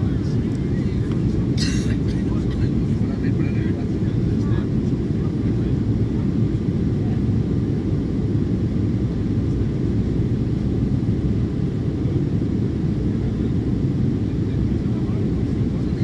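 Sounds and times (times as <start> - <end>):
airliner cabin rumble: 0.0 - 16.0.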